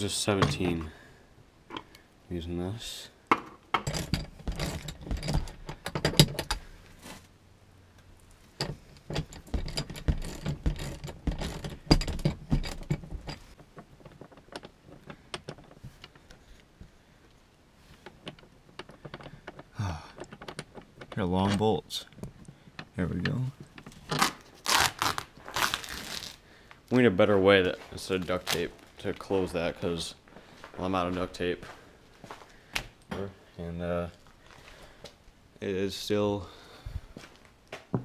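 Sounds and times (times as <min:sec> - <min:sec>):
metal tools clattering: 0:03.8 - 0:06.7, 0:08.6 - 0:16.2.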